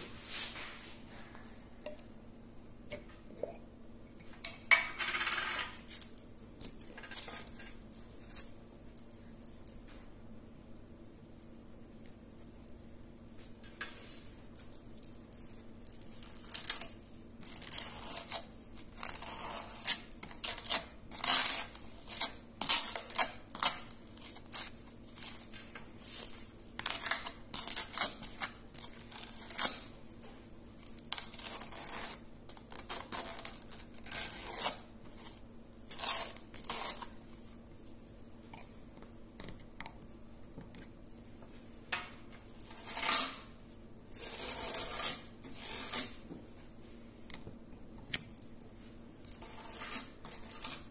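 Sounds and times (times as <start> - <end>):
knife scraping spread on toast: 44.2 - 46.2, 49.3 - 50.9.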